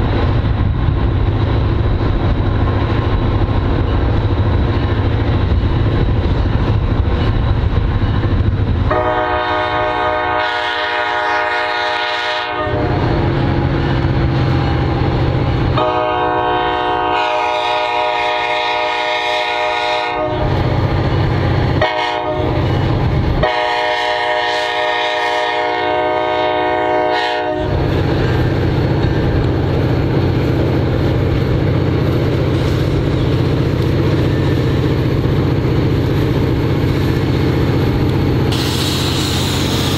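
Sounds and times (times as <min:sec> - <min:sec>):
diesel locomotive engine rumble: 0:00.0 - 0:39.9
locomotive horn blasts: 0:08.9 - 0:13.7, 0:15.8 - 0:20.6, 0:21.8 - 0:22.7, 0:23.4 - 0:27.8.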